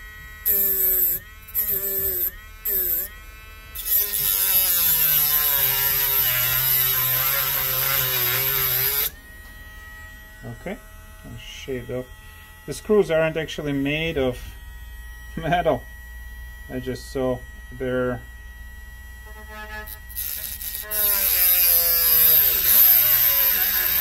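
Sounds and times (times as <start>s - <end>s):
grinding wheel grinding screws: 3.8s - 9.1s, 19.8s - 24.0s.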